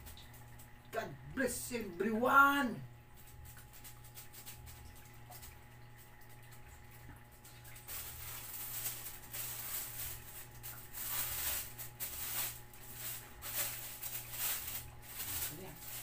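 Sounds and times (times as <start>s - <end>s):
low steady hum: 0.0s - 16.0s
plastic sheet rustling: 3.2s - 5.6s, 7.3s - 16.0s.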